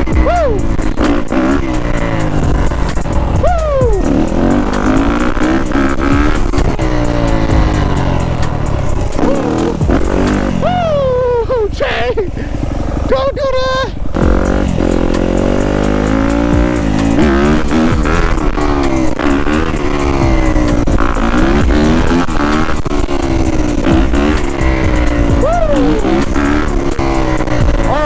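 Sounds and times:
dirt bike engine revving: 0.0 - 28.0.

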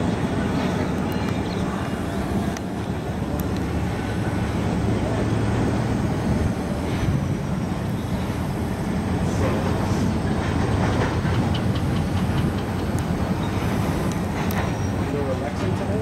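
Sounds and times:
diesel locomotives rumbling: 0.0 - 16.0
wheels clicking over rails: 9.2 - 16.0.

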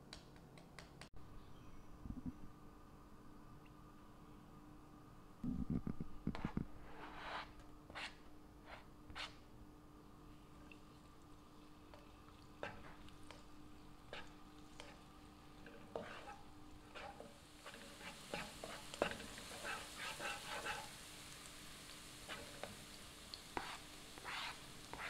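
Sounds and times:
spatula scraping a pan: 6.4 - 9.4, 12.6 - 13.5, 14.1 - 15.0, 15.6 - 21.1, 22.3 - 22.8, 23.5 - 25.0
garlic sizzling in oil: 11.0 - 25.0.

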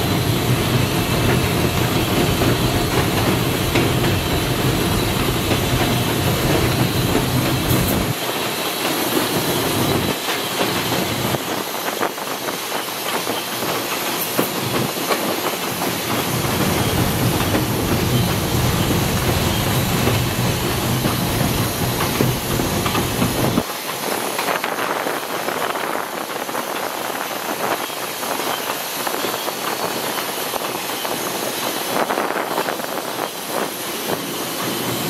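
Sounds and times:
steam hissing: 0.0 - 35.0
wheels clattering over rails: 0.0 - 35.0.

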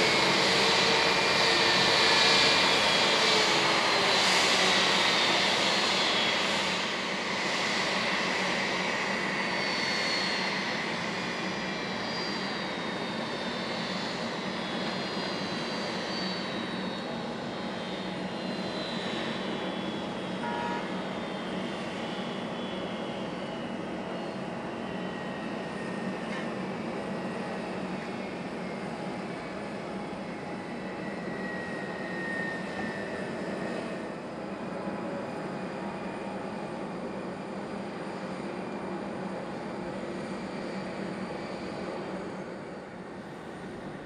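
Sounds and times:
jet engines spooling down: 0.0 - 44.0.

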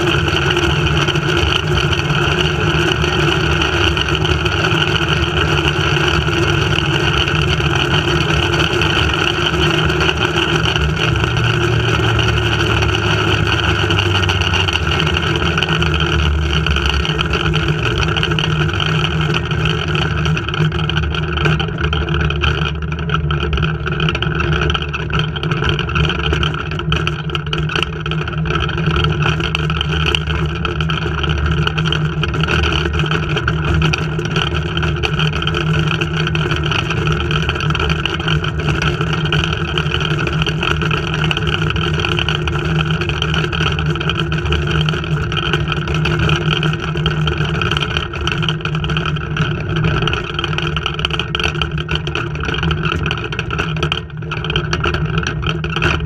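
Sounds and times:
zipline trolley rolling on cable: 0.0 - 56.0.

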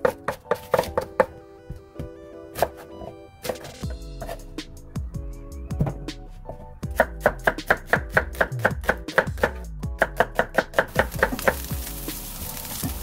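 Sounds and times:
knife chopping on wooden board: 0.0 - 1.3, 2.6 - 4.4.

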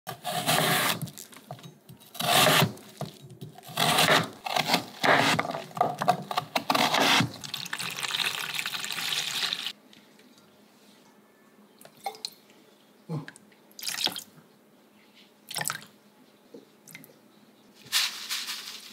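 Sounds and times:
knife cutting on wooden board: 0.1 - 1.1, 2.2 - 2.8, 3.6 - 7.3.

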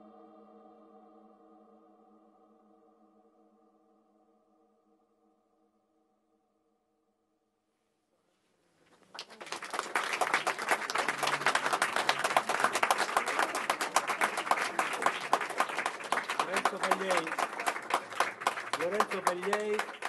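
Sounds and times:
audience applause: 9.0 - 20.0.

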